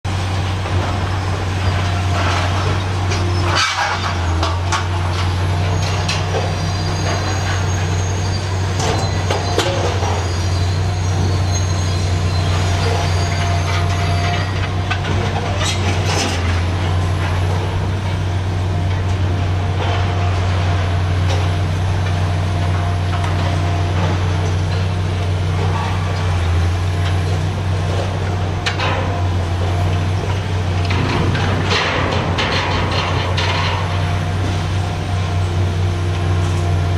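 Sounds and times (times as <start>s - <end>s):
excavator diesel engine droning: 0.1s - 36.9s
metallic clanks and bangs: 27.9s - 34.5s.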